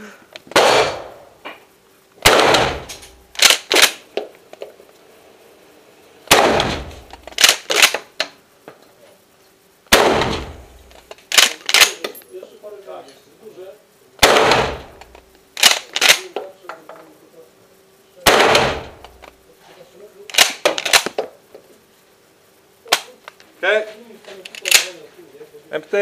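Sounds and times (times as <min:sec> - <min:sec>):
shotgun shots echoing: 0:00.5 - 0:01.3, 0:02.2 - 0:04.0, 0:06.3 - 0:08.0, 0:09.9 - 0:12.0, 0:14.2 - 0:16.3, 0:18.2 - 0:19.1
shotgun pump racking clack: 0:24.4 - 0:24.9.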